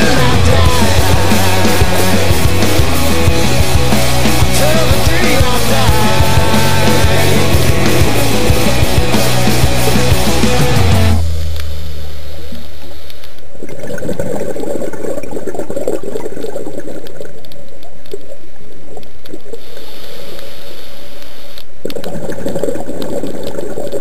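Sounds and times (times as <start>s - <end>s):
underwater bubbles gurgling: 13.4s - 20.0s, 21.8s - 24.0s.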